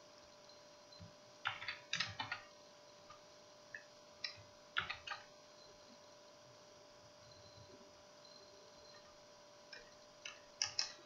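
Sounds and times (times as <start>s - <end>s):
faint steady hum: 0.0s - 11.0s
computer keyboard keystrokes: 1.4s - 2.5s, 4.2s - 5.3s, 9.7s - 11.0s.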